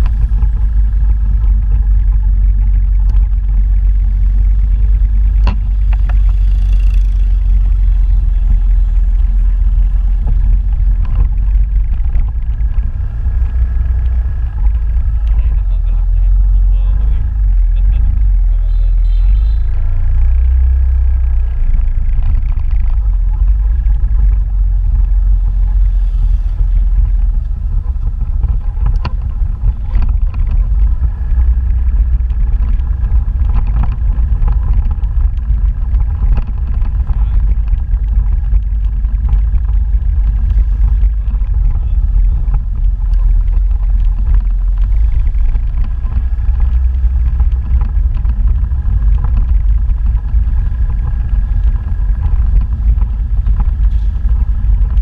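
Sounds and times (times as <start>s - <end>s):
motorbike engine running: 0.0s - 55.0s
wind noise on microphone: 0.0s - 55.0s.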